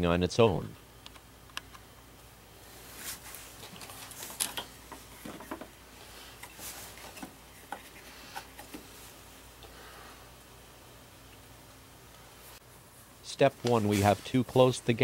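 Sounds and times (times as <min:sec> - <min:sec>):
rubbing rustle: 0:13.6 - 0:14.6.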